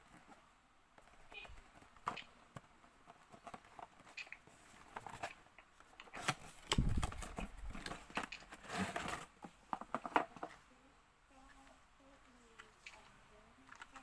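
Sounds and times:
plastic wrapping rustling: 1.1s - 10.6s.

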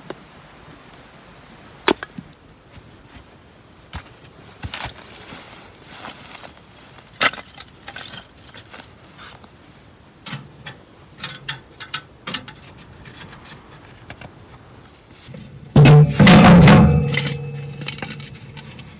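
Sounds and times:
metal stove door ringing: 15.6s - 18.9s.

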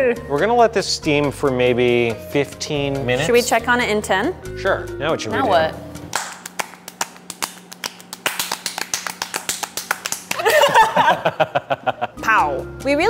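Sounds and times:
hands clapping: 6.1s - 10.9s.

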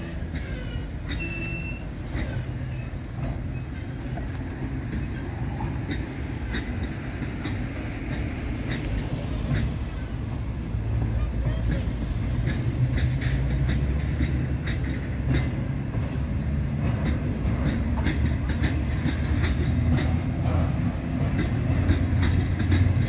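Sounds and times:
high wheel squeal: 0.0s - 17.1s
freight train wheels rumbling: 0.0s - 23.0s
wheel clicks and knocks: 16.8s - 23.0s.

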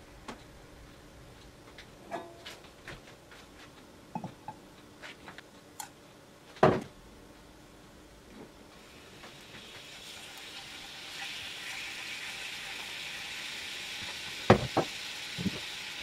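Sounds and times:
loud knock: 14.5s - 14.9s.

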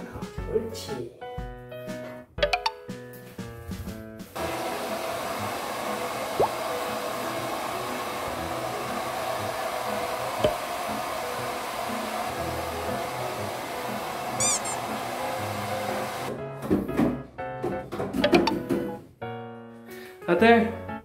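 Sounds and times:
background music: 0.0s - 5.5s, 6.2s - 21.0s
hair dryer blowing: 4.4s - 16.4s.

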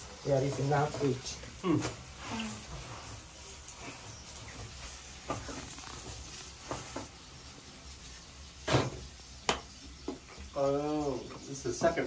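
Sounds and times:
flatbread sizzling in oil: 0.0s - 12.0s
knocks on a pan: 8.6s - 10.2s.

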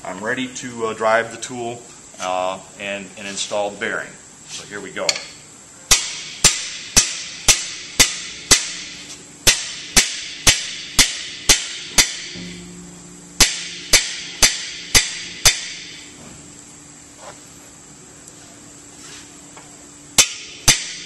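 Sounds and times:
hammer striking metal bar: 5.9s - 12.6s, 13.4s - 16.0s, 20.2s - 21.0s.

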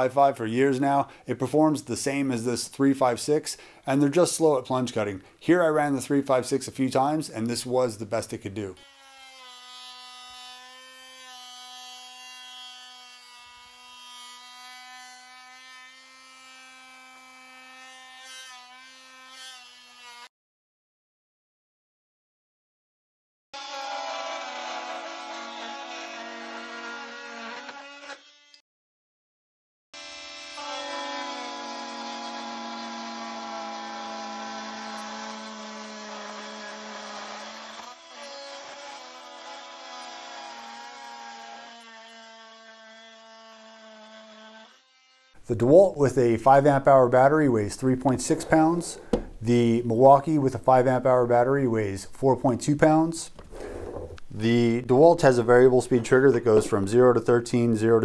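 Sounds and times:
multi-tool cutting copper pipe: 8.8s - 20.3s, 30.0s - 45.9s
oscillating tool cutting wood: 23.6s - 28.6s, 30.0s - 45.8s.

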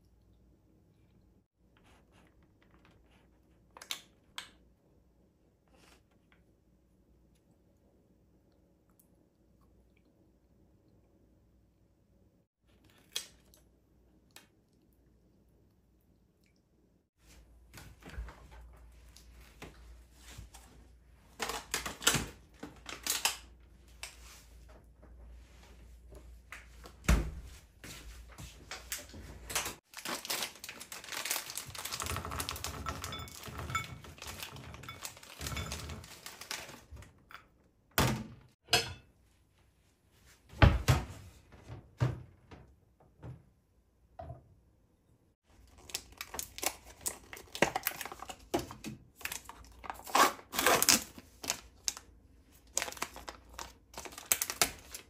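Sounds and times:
kitchen knocks and clicks: 37.0s - 39.1s.

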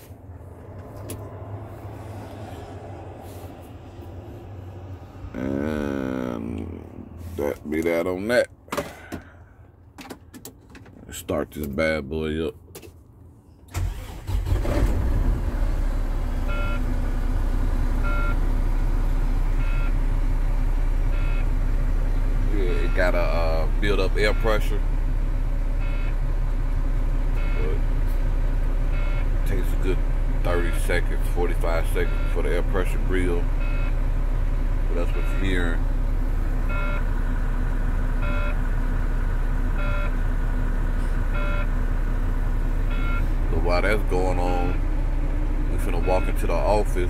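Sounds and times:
diesel truck engine idling: 13.8s - 47.0s
cab warning beep: 16.5s - 16.8s, 18.0s - 18.4s, 19.6s - 20.0s, 21.1s - 21.5s, 22.7s - 24.8s, 25.8s - 26.2s, 27.4s - 27.8s, 28.9s - 29.3s, 30.5s - 31.0s, 31.6s - 32.9s, 33.6s - 34.0s, 35.0s - 35.8s, 36.7s - 37.1s, 38.2s - 38.6s, 39.8s - 40.2s, 41.3s - 41.7s, 42.9s - 44.9s, 45.8s - 47.0s
warning chime beeping: 45.8s - 47.0s.

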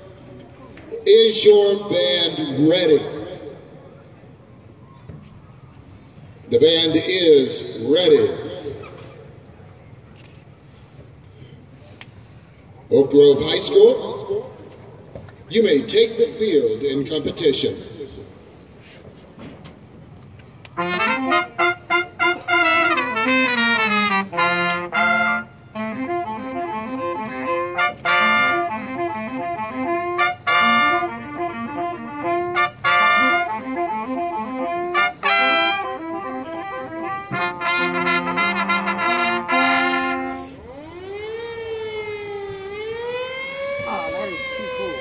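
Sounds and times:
marching band brass chords: 20.7s - 40.7s
siren wailing: 39.5s - 45.0s.

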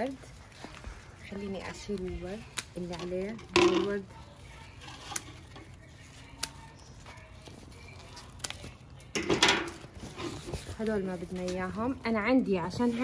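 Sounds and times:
rustle of leaves and stems: 0.0s - 9.1s
pruning shears snipping stems: 6.3s - 6.7s.

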